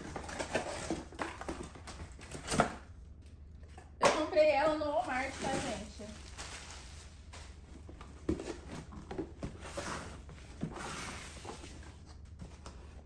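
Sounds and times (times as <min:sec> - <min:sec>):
cardboard box scraping and rustling: 0:08.2 - 0:12.0.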